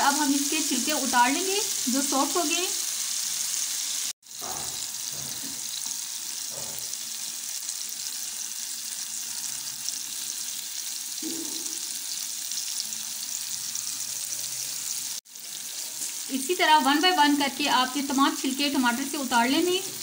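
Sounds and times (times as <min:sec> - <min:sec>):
oil sizzling in a frying pan: 0:00.0 - 0:20.0.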